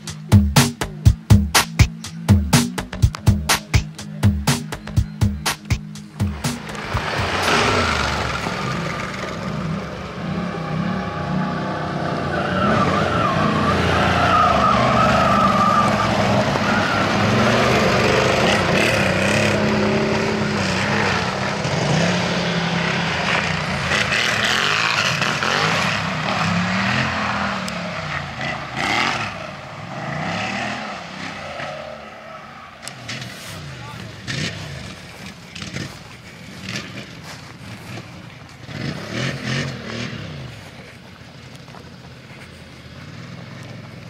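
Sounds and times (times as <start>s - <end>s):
higher-pitched engine note: 0.0s - 11.8s
quad bike engines revving: 0.0s - 44.0s.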